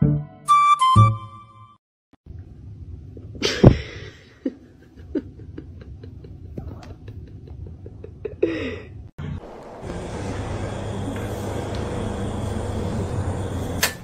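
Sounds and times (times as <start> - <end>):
person laughing: 3.4 - 9.0.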